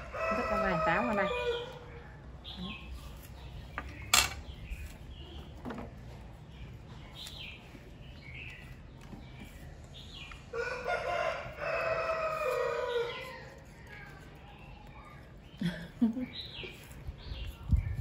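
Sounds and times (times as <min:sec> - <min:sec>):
rooster crowing: 0:00.0 - 0:01.8, 0:10.5 - 0:13.3.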